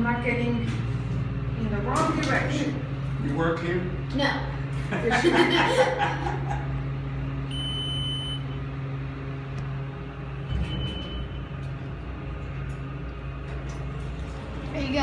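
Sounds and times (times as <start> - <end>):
elevator hum: 0.0 - 15.0
short high beep: 7.5 - 8.6.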